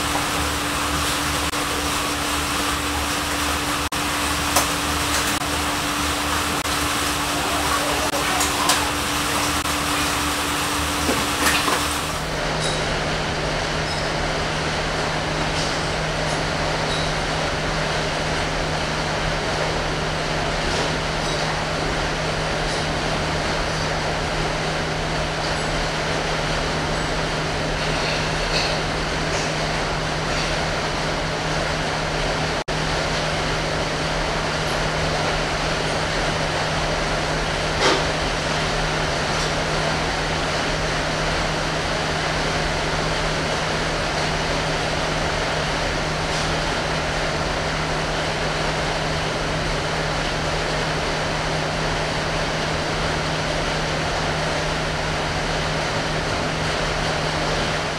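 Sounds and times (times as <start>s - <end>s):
machine humming: 0.0s - 16.8s.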